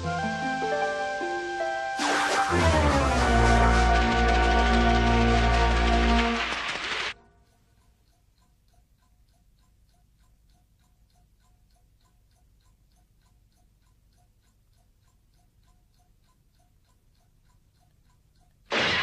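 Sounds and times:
loud burst of music: 1.9 - 7.2
clock ticking: 7.2 - 18.9.

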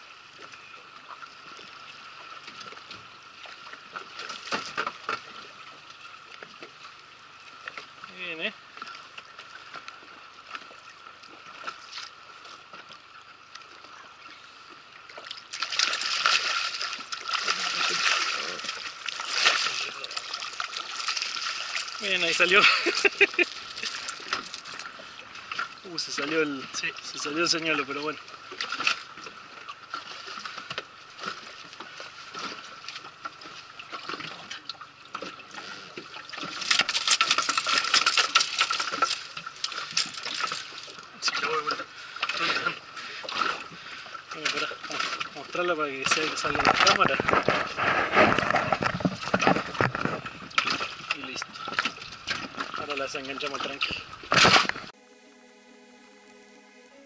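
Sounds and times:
water lapping against boat: 0.0 - 55.0
fish thrashing and splashing: 15.3 - 25.8, 35.4 - 41.0, 46.0 - 52.8.

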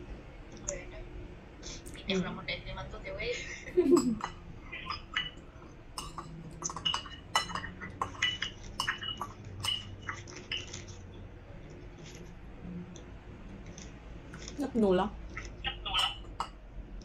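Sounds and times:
cutlery clinking on ceramic bowl: 6.0 - 10.9.

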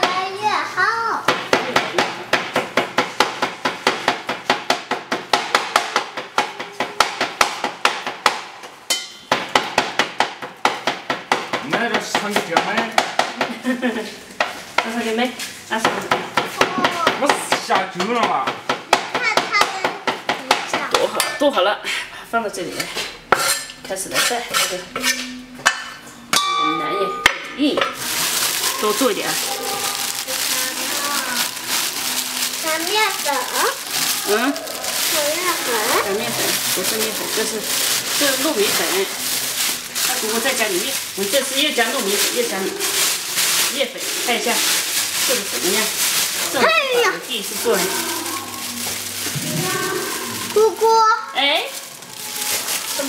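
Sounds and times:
steel bowl ringing: 25.7 - 34.9.

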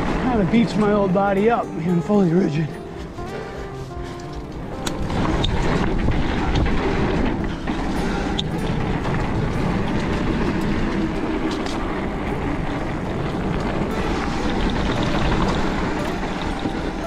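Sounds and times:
bike tyres rolling over dirt: 0.0 - 17.0
bike clicks and rattles: 4.0 - 17.0.

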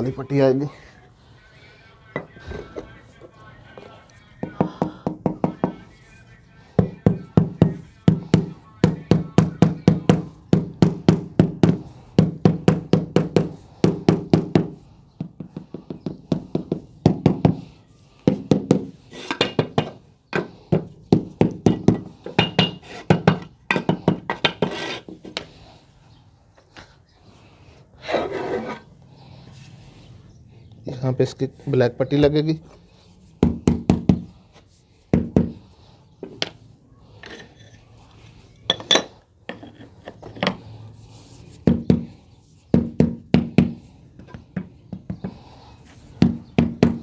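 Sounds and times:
short scraping: 28.0 - 28.9.

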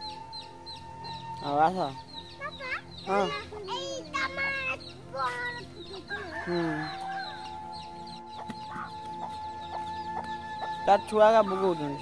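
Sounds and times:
hen clucking: 8.3 - 11.8.

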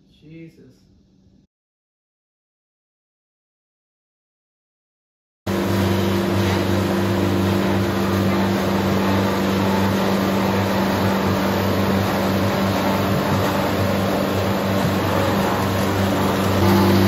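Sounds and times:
stump grinder engine droning: 5.5 - 17.0.

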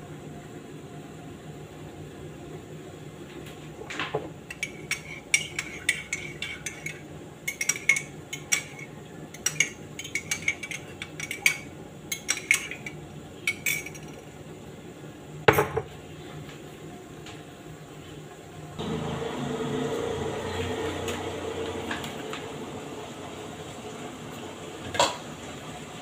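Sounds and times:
metal spoon clinking in a mug: 4.5 - 14.3.

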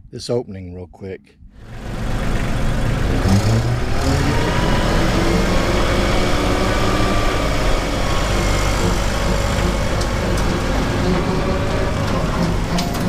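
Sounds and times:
tractor diesel engine running: 1.6 - 13.0
mower striking debris ticks: 8.0 - 13.0.

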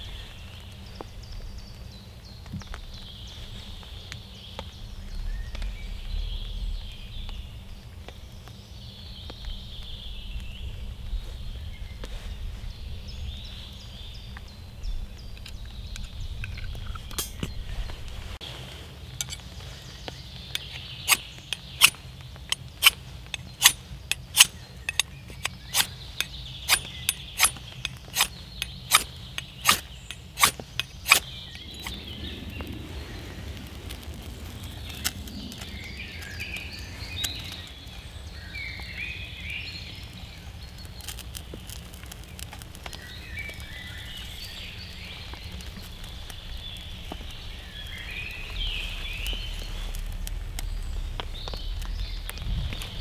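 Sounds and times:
knife blade scraping: 22.8 - 25.9, 26.7 - 31.2.

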